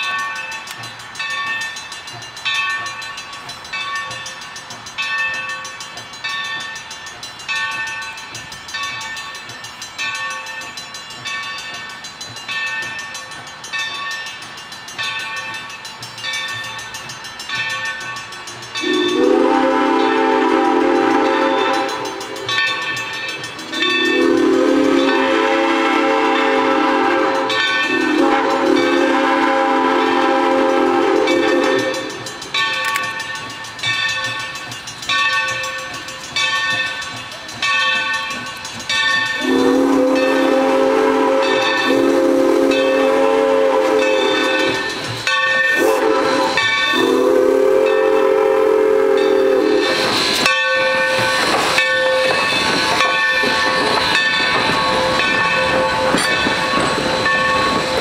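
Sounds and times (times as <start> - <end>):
locomotive bell ringing: 0.0 - 58.0
steam whistle blasts: 18.8 - 22.4, 23.8 - 32.3, 39.4 - 45.0, 45.6 - 51.5.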